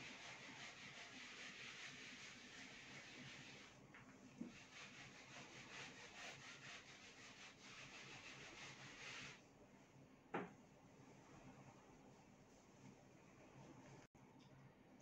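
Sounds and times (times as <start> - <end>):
eraser scrubbing whiteboard: 0.0 - 9.4
small thump: 10.3 - 10.6.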